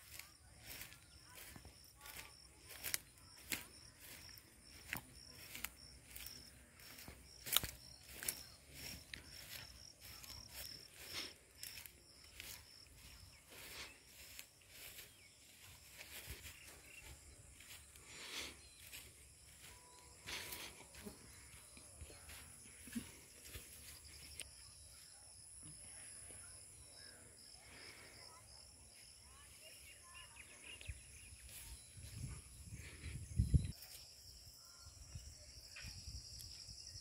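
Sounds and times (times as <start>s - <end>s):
footsteps on dirt track: 0.0s - 24.5s
insects chirping: 0.0s - 37.0s.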